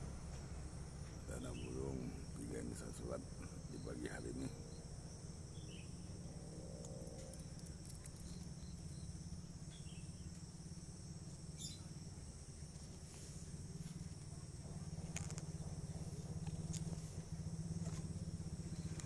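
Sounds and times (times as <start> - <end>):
insect chorus: 0.0 - 19.0
faint short chirps: 11.6 - 11.9.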